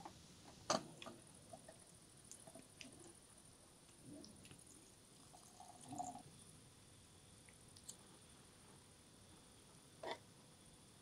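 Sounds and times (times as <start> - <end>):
tea trickling into cup: 4.4 - 6.2.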